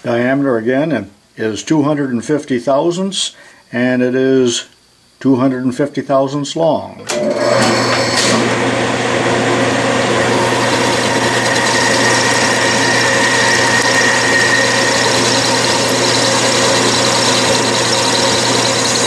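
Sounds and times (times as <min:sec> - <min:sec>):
metal lathe humming: 0:07.1 - 0:19.0.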